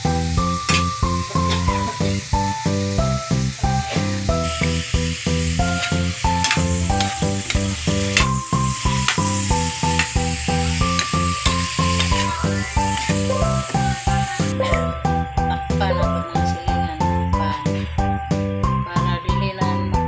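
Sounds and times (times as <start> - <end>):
meat sizzling in a pan: 0.0 - 18.5.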